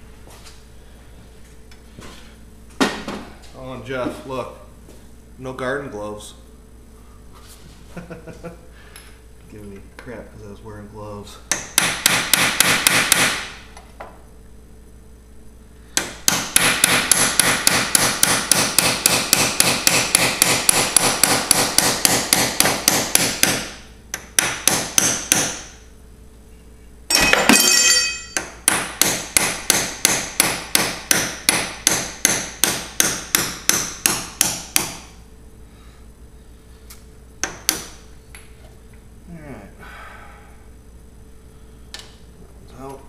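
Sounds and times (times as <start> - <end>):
hammer striking metal punch: 11.5 - 13.6, 16.0 - 25.7, 27.1 - 35.1
ringing metallic clank: 27.1 - 28.4.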